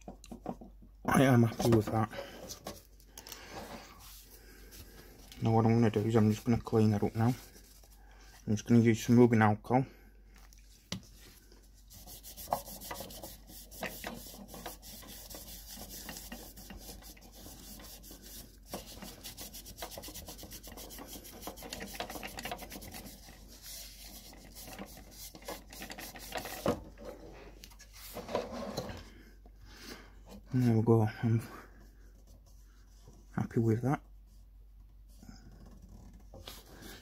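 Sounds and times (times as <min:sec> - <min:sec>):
tissue rubbing on textured plastic: 0:03.6 - 0:08.8, 0:10.6 - 0:26.8.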